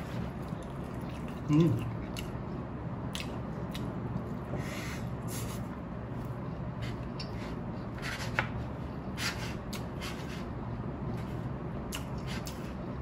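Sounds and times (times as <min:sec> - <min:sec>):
low background hum: 0:00.0 - 0:13.0
chewing: 0:00.4 - 0:02.4.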